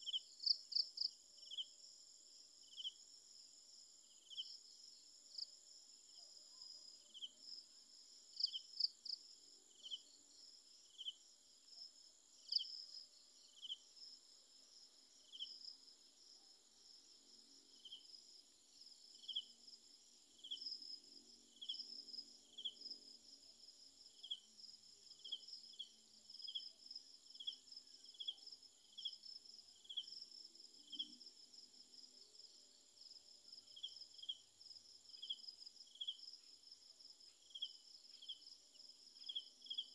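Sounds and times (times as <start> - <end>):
short insect chirp: 17.6 - 23.1, 24.1 - 31.7, 33.6 - 39.9.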